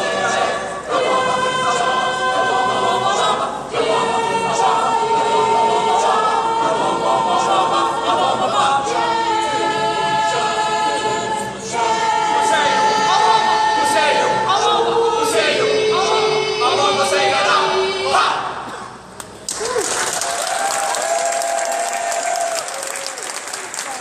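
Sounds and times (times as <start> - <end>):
choir singing a cappella: 0.0 - 18.8.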